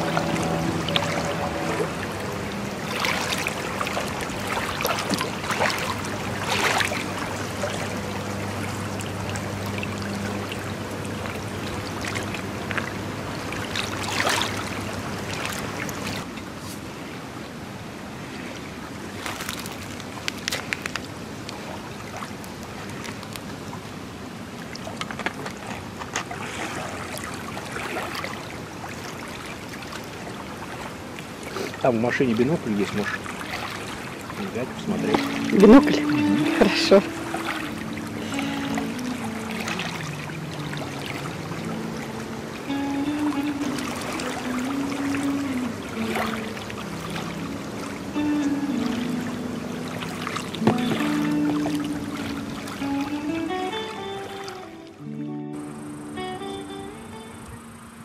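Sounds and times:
low steady hum: 0.0s - 18.4s, 26.3s - 53.2s
waves lapping on pebbly shore: 0.0s - 54.8s.

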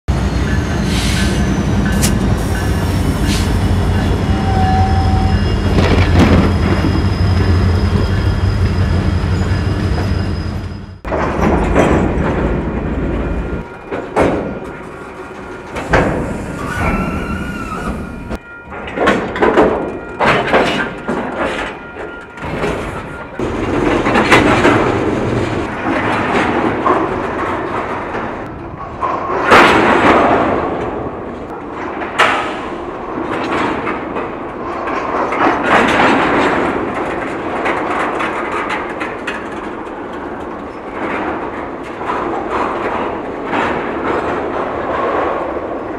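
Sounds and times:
steel wheels clattering on rail: 0.1s - 45.9s
train couplers banging: 11.0s - 45.8s.

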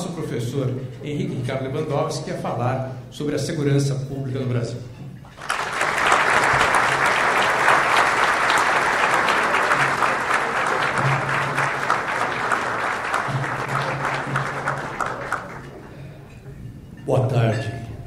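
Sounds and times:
audience applauding: 5.3s - 16.1s.

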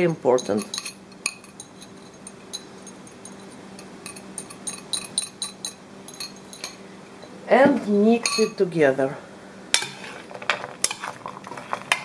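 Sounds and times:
metal spoon clinking glass bowl: 0.3s - 6.8s, 8.2s - 8.6s.

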